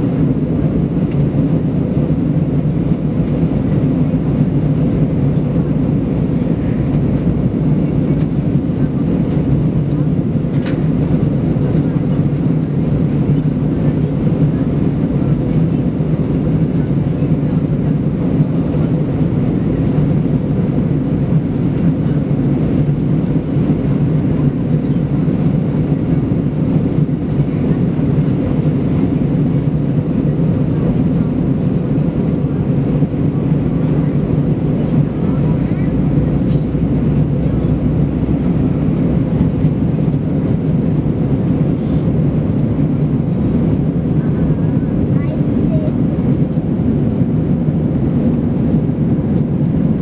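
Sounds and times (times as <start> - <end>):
airplane cabin engine rumble: 0.0 - 50.0.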